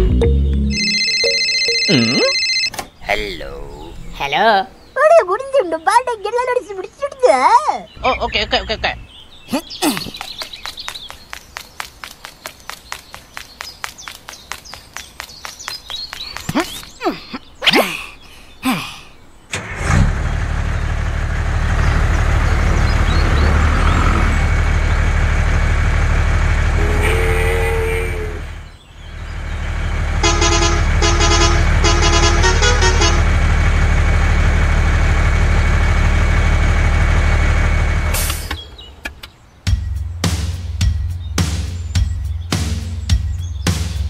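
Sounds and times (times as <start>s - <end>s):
low engine drone: 19.5s - 38.7s
vehicle horn tooting: 26.8s - 28.4s, 30.2s - 33.4s.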